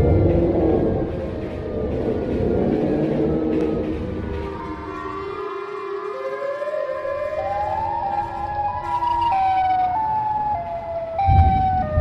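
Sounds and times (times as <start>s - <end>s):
low rumble: 0.0s - 5.2s
layered siren wails: 0.0s - 12.0s.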